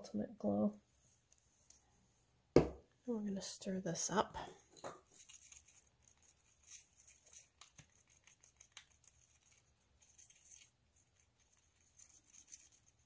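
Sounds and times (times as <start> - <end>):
stick stirring paint in plastic cup: 4.8 - 13.0.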